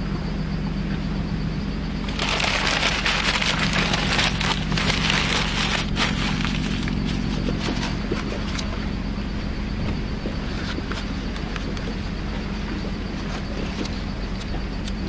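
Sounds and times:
steady low hum: 0.0s - 15.0s
wood fire crackling: 2.0s - 8.1s.

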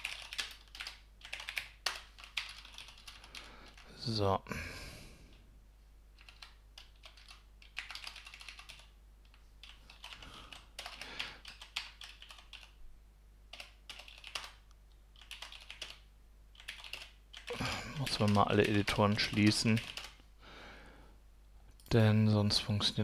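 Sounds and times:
keyboard typing: 0.0s - 3.9s, 6.2s - 12.8s, 13.5s - 14.6s, 15.2s - 20.2s.

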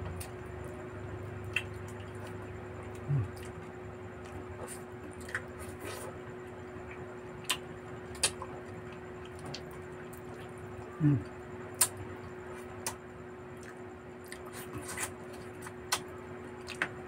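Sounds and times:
steady low hum: 0.0s - 17.0s
chewing and lip smacks: 1.4s - 6.1s, 6.8s - 10.9s, 11.8s - 13.0s, 13.6s - 16.9s.

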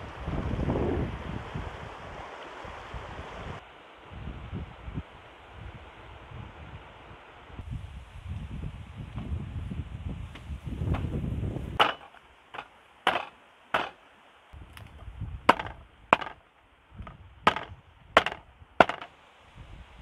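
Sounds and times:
cleaver chopping on wooden block: 11.8s - 14.0s, 15.5s - 16.4s, 17.0s - 19.1s.

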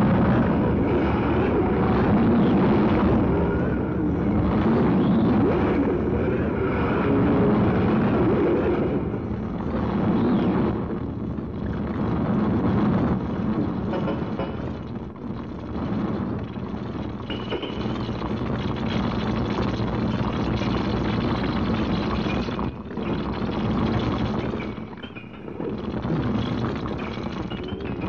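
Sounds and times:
harsh distorted noise music: 0.0s - 28.0s.

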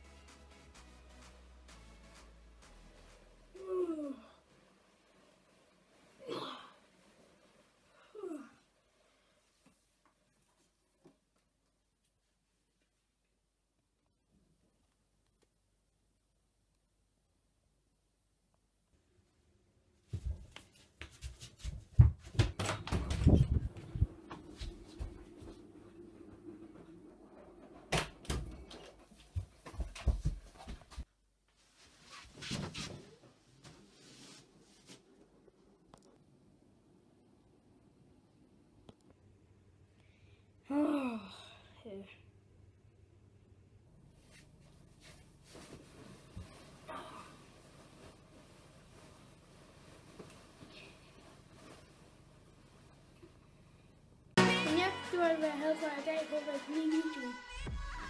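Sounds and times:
bedding rustle: 29.0s - 35.3s, 44.1s - 53.2s.

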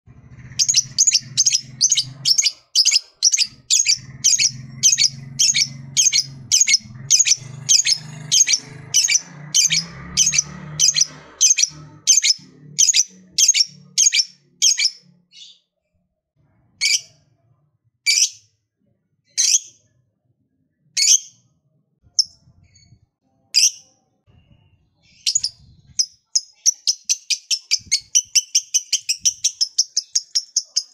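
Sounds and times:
low hum: 0.1s - 14.0s
lovebird shrill calls: 0.6s - 15.0s.

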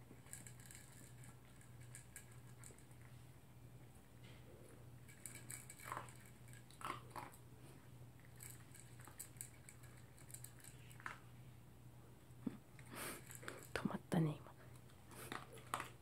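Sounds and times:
dog chewing from plastic bowl: 5.0s - 7.5s, 8.2s - 11.2s, 14.8s - 16.0s.

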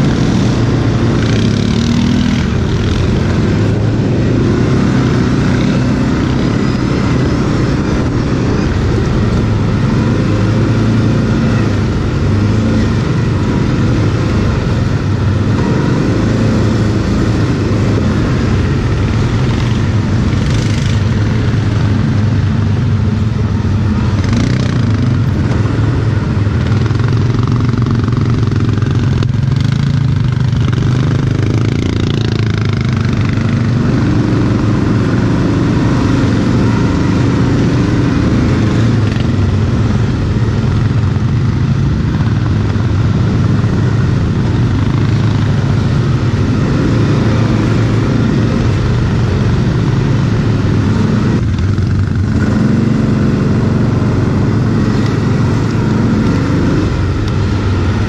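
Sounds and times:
quad bike engine revving: 0.0s - 58.0s.

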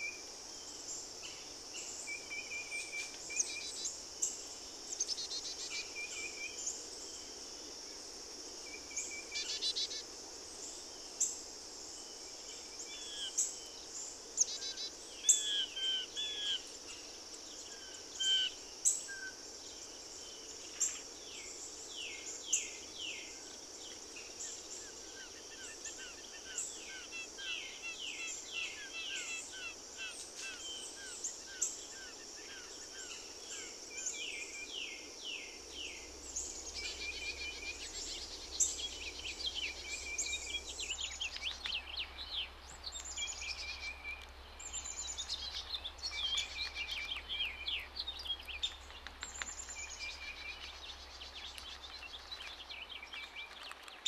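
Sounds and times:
steady high-pitched hiss: 0.0s - 54.0s
songbirds chirping and whistling: 12.0s - 54.0s.

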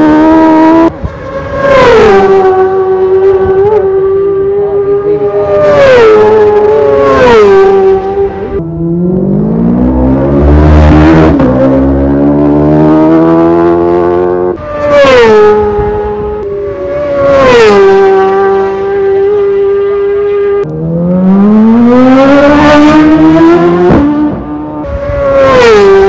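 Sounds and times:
racing motorcycles passing: 0.0s - 26.0s.

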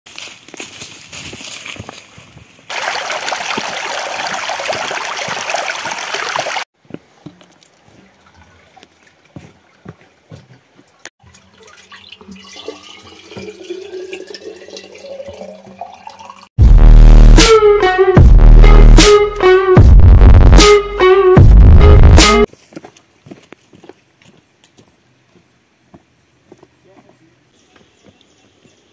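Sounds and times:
water filling a bottle: 2.7s - 6.6s, 11.3s - 16.5s
loud running water: 2.7s - 6.7s
faint drips and knocks: 12.8s - 13.9s.

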